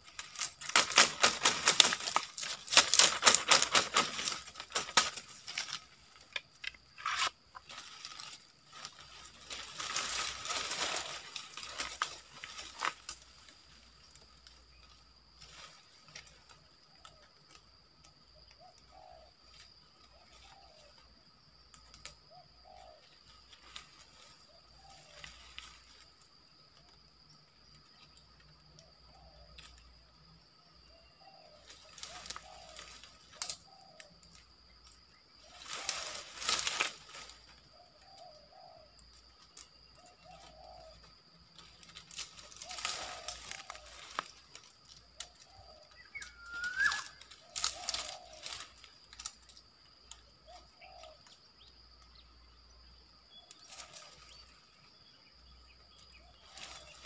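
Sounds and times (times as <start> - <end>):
dry palm fronds rustling: 0.0 - 21.2, 21.8 - 27.1, 31.4 - 51.4, 53.5 - 55.0, 56.0 - 57.0
bird chirp: 18.3 - 21.1, 37.1 - 57.0
dove cooing: 18.6 - 19.4, 22.3 - 23.0, 31.2 - 32.8, 40.1 - 41.0, 45.5 - 48.5, 50.4 - 51.2.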